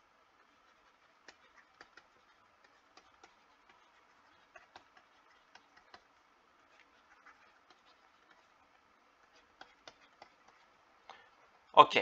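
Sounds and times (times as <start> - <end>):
stylus tapping on tablet: 1.2 - 6.1, 9.2 - 10.7.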